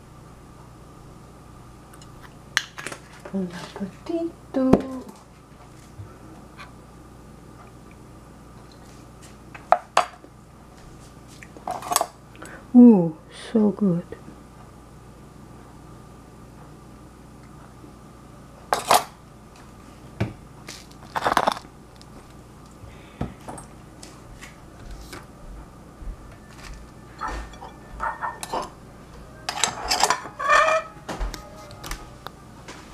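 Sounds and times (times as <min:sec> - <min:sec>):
dishes clattering and ringing: 0:27.1 - 0:28.8, 0:29.5 - 0:31.0
metal spoon clinking on porcelain dishes: 0:27.2 - 0:28.7.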